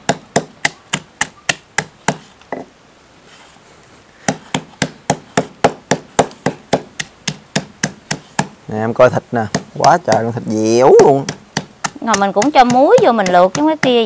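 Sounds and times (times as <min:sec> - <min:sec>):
pestle pounding in mortar: 0:04.2 - 0:08.6, 0:09.4 - 0:14.0.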